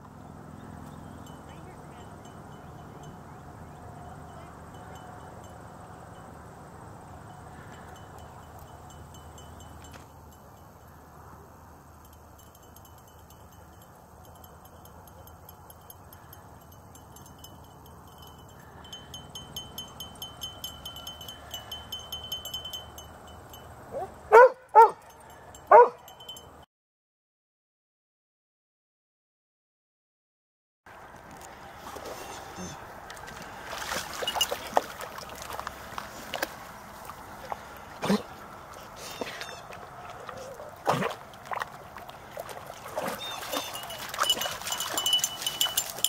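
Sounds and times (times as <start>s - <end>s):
outdoor background noise: 0.0s - 26.7s, 30.9s - 46.0s
dog yipping: 23.9s - 25.0s, 25.7s - 26.0s, 43.0s - 44.4s.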